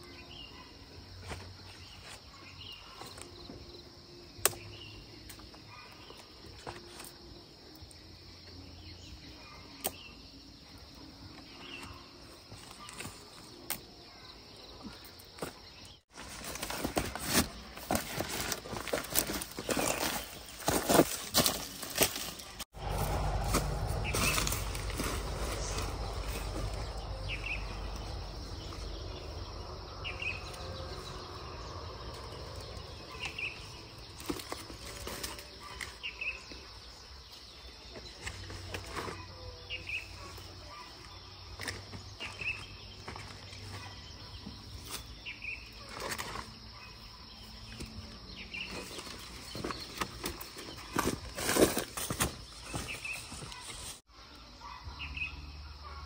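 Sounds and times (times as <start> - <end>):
fruit rustling in a basket: 15.4 - 31.3, 32.1 - 36.4, 47.8 - 54.1.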